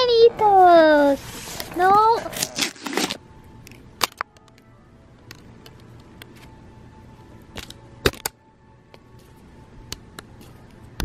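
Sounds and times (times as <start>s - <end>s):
faint steady tones: 3.2s - 11.0s.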